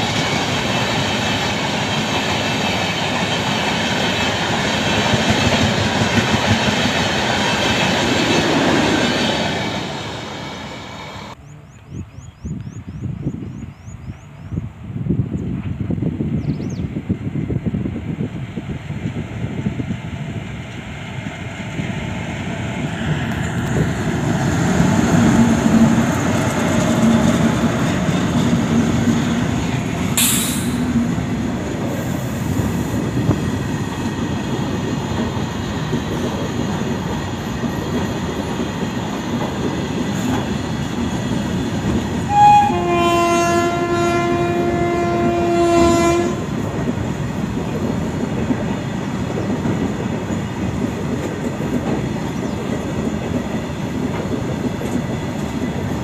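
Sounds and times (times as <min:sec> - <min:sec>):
freight train wheels rumbling on rails: 0:00.0 - 0:56.0
train horn: 0:42.3 - 0:46.5.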